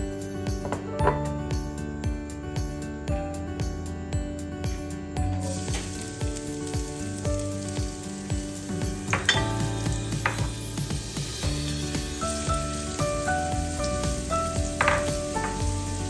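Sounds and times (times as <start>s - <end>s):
garlic sizzling in hot oil: 5.4s - 16.0s.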